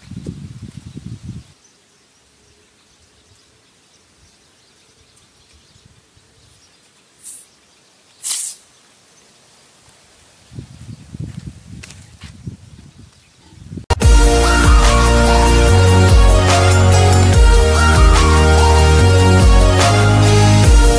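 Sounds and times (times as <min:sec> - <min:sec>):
faint outdoor background: 0:00.0 - 0:20.9
bottle rocket air hiss: 0:07.2 - 0:07.5, 0:08.2 - 0:08.7.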